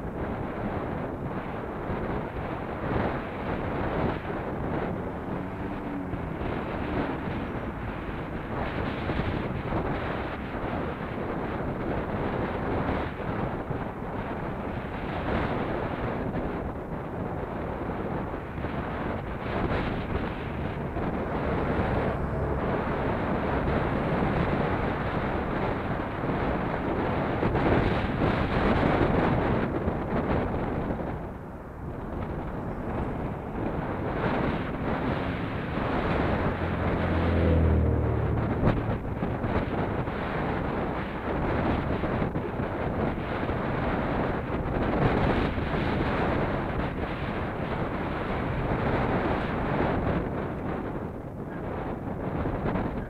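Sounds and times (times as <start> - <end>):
road noise: 0.0 - 53.0
wind buffeting microphone: 0.0 - 53.0
motorcycle engine: 1.8 - 13.9, 16.9 - 42.4.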